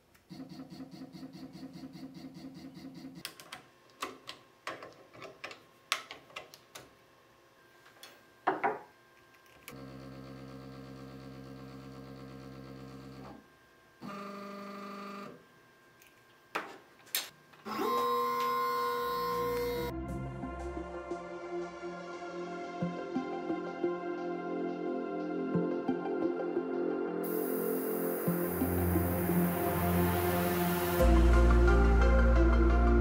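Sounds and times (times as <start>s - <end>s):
steady machine hum: 9.0s - 16.0s, 27.2s - 31.9s
stepper motors whining: 17.6s - 19.9s.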